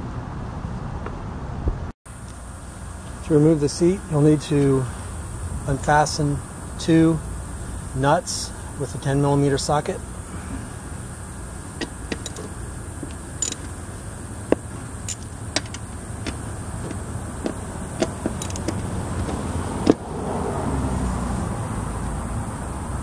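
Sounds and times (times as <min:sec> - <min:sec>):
low background hum: 0:02.1 - 0:19.9
socket wrench metal clicks: 0:11.8 - 0:12.5, 0:13.4 - 0:13.7, 0:18.0 - 0:18.8.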